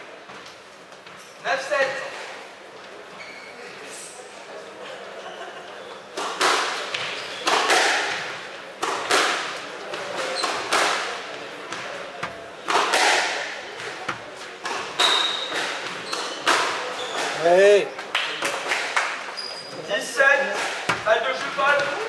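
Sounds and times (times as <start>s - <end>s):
squash ball hitting racket: 6.2s - 17.4s, 20.4s - 22.0s
squash ball smacking walls: 6.2s - 17.4s, 20.4s - 22.0s.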